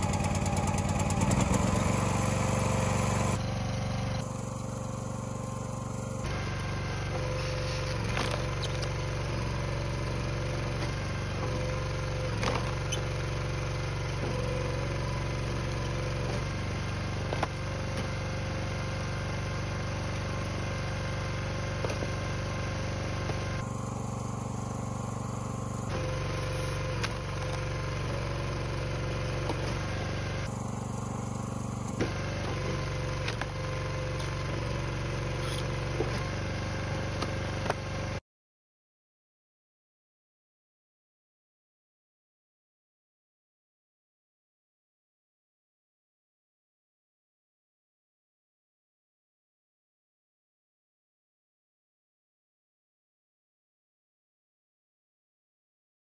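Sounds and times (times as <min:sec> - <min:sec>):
log splitter engine running: 0:00.0 - 0:38.2.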